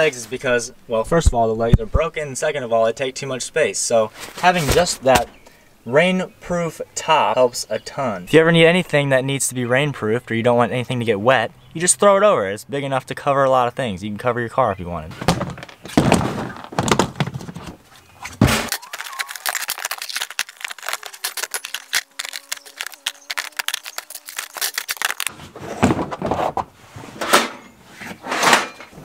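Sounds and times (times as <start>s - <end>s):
plastic bins knocking and scraping: 15.1s - 18.8s, 25.3s - 29.0s.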